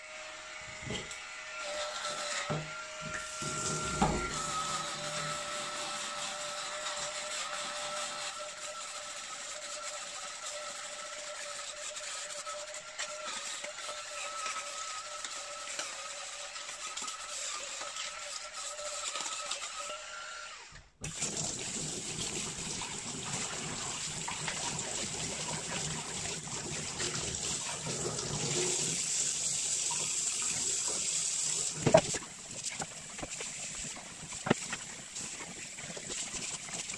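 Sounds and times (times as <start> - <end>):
electric brush motor whirring: 0.0 - 20.9
tap running and splashing: 2.5 - 4.7, 21.0 - 29.1, 29.8 - 36.9.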